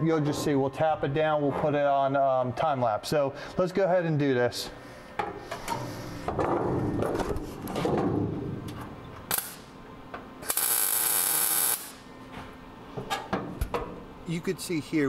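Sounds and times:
welder arc hissing: 9.3 - 9.7, 10.4 - 12.1
welder arc crack: 9.3 - 9.8, 10.4 - 12.1.

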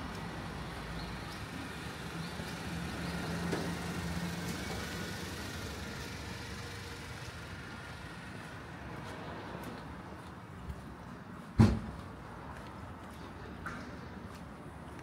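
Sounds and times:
rain and traffic hiss: 0.0 - 9.7
vehicle engine hum: 0.0 - 15.0.

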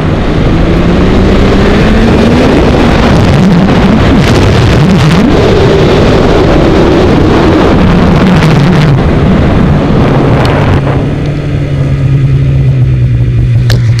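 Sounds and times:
snowmobile engine running hard: 0.0 - 14.0
wind rushing on microphone: 0.0 - 14.0.

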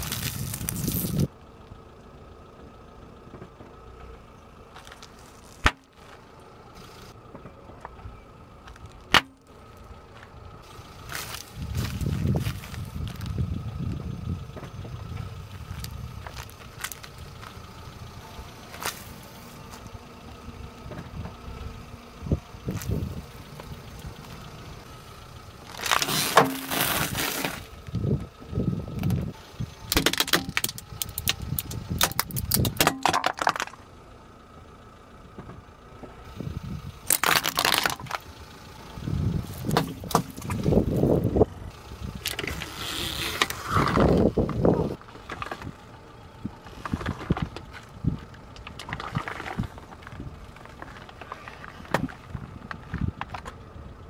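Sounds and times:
tyre rolling over grit: 25.7 - 27.7.

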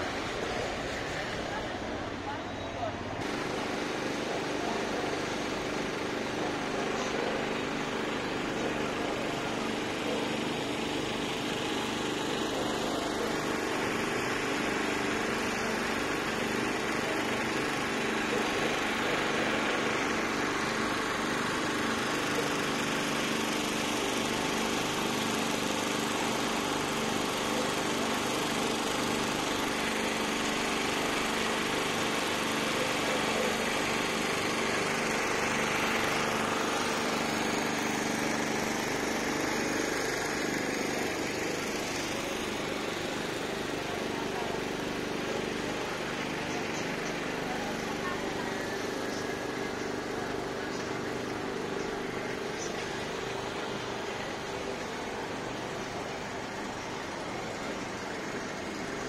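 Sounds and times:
mechanical engine hum: 0.0 - 59.0.

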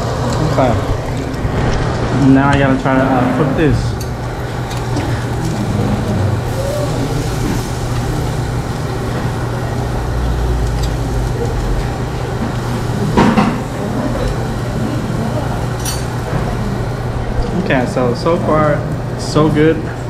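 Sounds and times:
extraction hood drone: 0.0 - 19.4
beef sizzling on a grill: 4.3 - 16.3.

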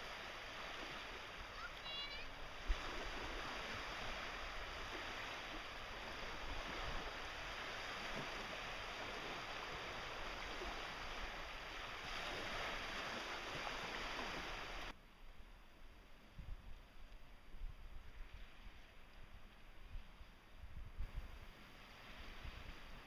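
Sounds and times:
small waves on shoreline: 0.0 - 23.0
wind rumble on microphone: 2.4 - 23.0.

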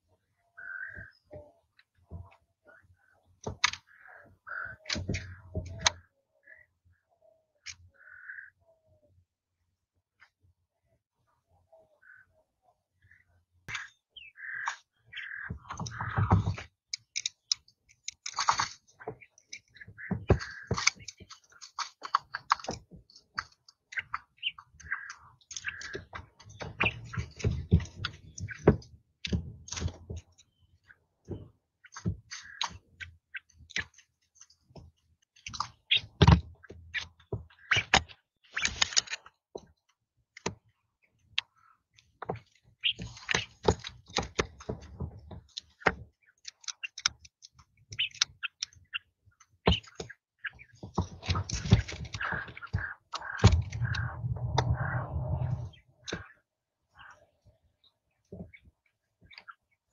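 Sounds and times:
quail pecking taps: 0.1 - 6.6, 7.2 - 9.1, 13.1 - 40.7, 41.3 - 56.3
quail chirping: 0.4 - 1.6, 2.2 - 9.1, 11.6 - 16.5, 24.0 - 28.8, 32.4 - 33.5, 49.7 - 56.3.

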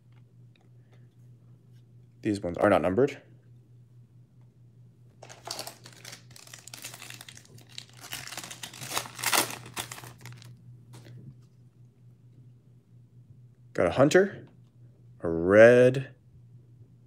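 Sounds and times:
foil wrapper rustling: 5.2 - 10.5
foil wrapper tearing and crinkling: 5.2 - 10.5.

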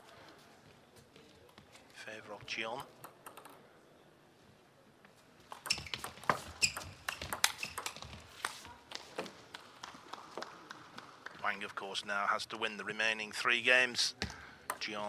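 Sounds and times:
ping pong ball clicking off bats: 2.8 - 3.6, 5.5 - 8.6, 14.6 - 15.0
ball bouncing on table: 5.5 - 8.6.

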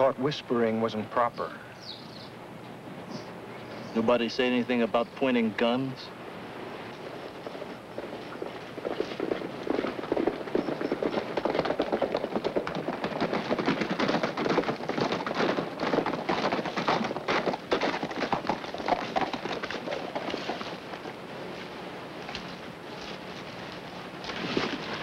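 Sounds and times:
horse hoofbeats: 6.8 - 25.0.

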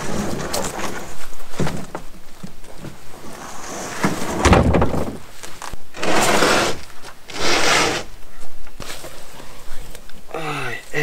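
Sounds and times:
hull scraping metal trailer: 0.0 - 1.3, 3.1 - 5.3, 5.9 - 8.1.

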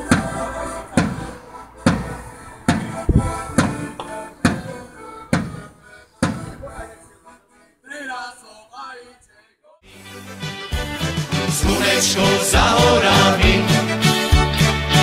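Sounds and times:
folk music chords: 0.0 - 7.9, 9.9 - 15.0
drum beat: 1.0 - 6.7.

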